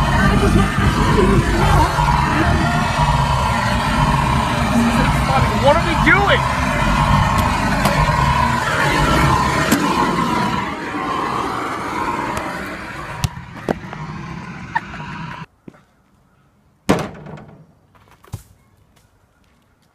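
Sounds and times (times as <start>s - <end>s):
car cabin road noise: 0.0s - 15.5s.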